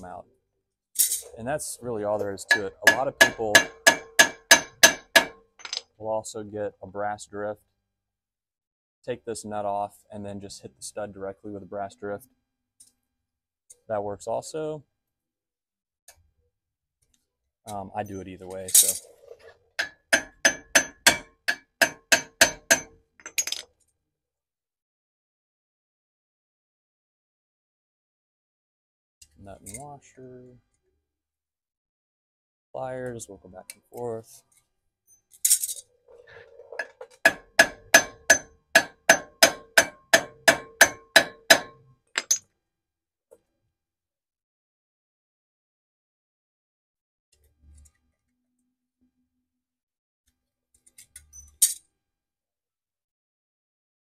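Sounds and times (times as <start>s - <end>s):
hammer striking metal nuts: 2.3s - 5.8s, 19.8s - 23.6s, 36.8s - 42.4s.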